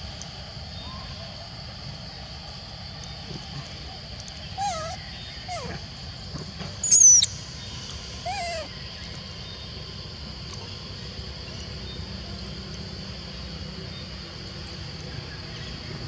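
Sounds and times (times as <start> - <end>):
insect drone: 0.0 - 16.0
animal calls: 4.4 - 6.0, 6.8 - 9.2.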